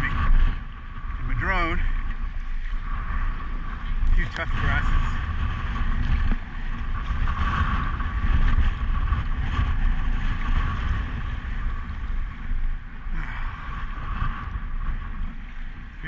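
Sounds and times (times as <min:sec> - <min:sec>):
water sloshing against hull: 0:00.0 - 0:16.0
wind buffeting microphone: 0:00.0 - 0:16.0.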